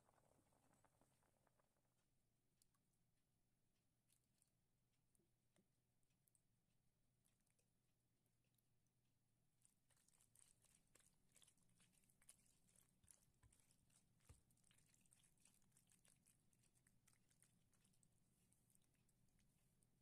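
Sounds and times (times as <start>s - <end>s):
spatula mixing pasta in sauce: 9.5s - 20.0s.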